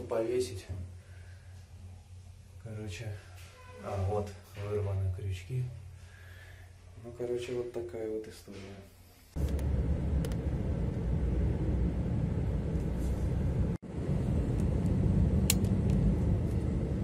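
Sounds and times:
light click: 9.4 - 10.4.

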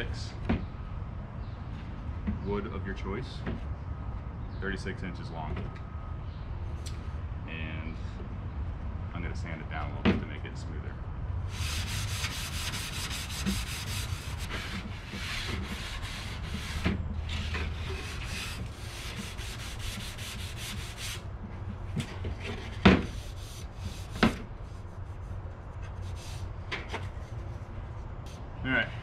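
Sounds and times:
sanding block rasping on wood: 11.5 - 21.2, 23.1 - 25.3.

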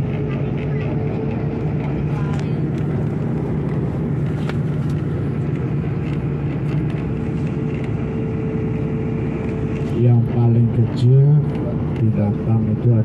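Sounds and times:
bus engine humming: 0.0 - 13.0.

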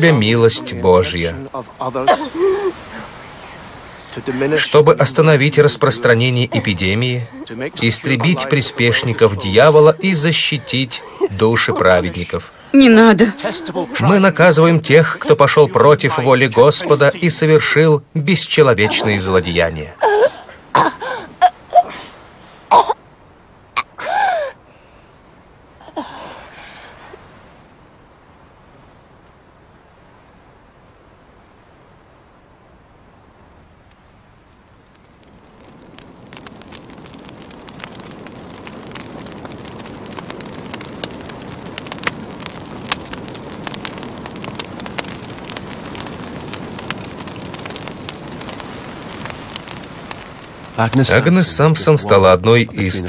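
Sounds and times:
fire crackling and popping: 0.0 - 53.0
fire rushing: 0.0 - 53.0
woman coughing: 2.1 - 2.7, 20.0 - 21.9, 22.7 - 23.0.

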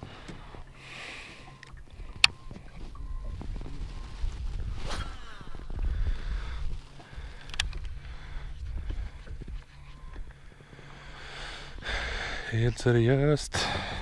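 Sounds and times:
wind and water rumble: 0.0 - 14.0
sharp clicks: 7.4 - 8.0.

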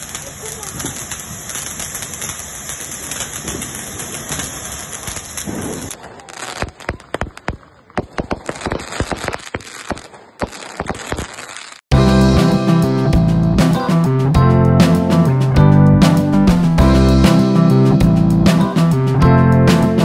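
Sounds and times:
firework fountains hissing: 0.0 - 7.6
firecrackers cracking and popping: 0.0 - 11.9.

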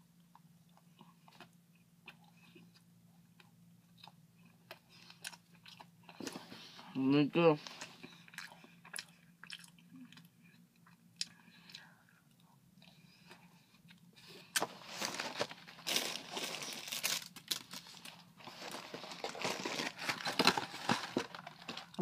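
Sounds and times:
person chewing: 0.7 - 6.5, 7.8 - 14.7.

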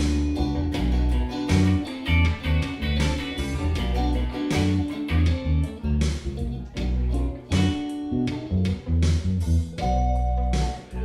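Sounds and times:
guitar music with bass and beat: 0.0 - 11.0.

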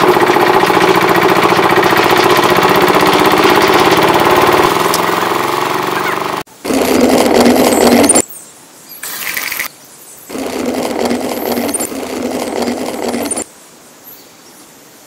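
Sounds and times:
small electric motor buzzing: 2.1 - 8.2, 10.3 - 13.4
gear rattle: 6.7 - 8.2, 10.3 - 13.4.

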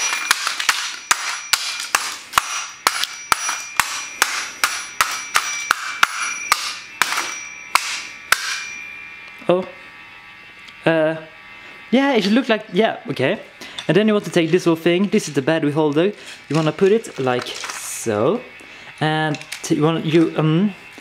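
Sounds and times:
hammer smashing alarm clock: 0.0 - 8.9
short metallic ringing: 2.6 - 9.2.

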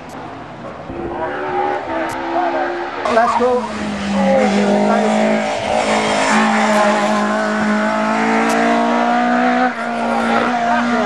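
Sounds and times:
race car engine at high revs: 0.0 - 11.0.

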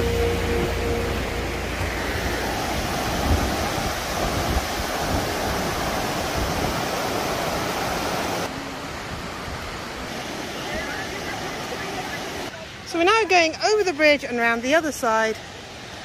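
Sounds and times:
wind buffeting microphone: 0.0 - 8.2
river rushing over boulders: 0.0 - 16.0.

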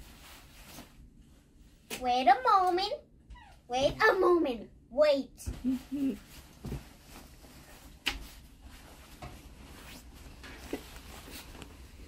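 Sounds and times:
cloth rustling: 0.0 - 1.9, 5.5 - 12.0.

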